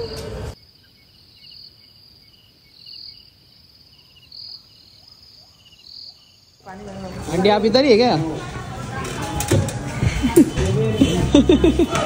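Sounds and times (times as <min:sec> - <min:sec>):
faint pulsing insect trills: 0:00.0 - 0:06.8
insects trilling: 0:00.0 - 0:07.2.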